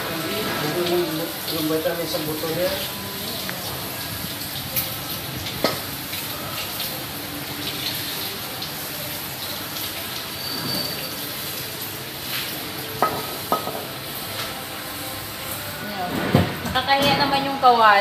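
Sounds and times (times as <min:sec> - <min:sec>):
tap water running into sink: 0:00.0 - 0:14.0
wok knocking metallically: 0:13.0 - 0:13.9.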